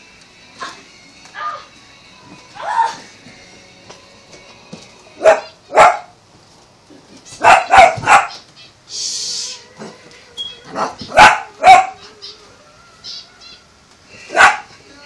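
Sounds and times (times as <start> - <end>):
dog barking: 5.2 - 6.1, 7.4 - 8.4, 10.7 - 12.0, 14.3 - 14.7
brief hiss: 8.9 - 9.6.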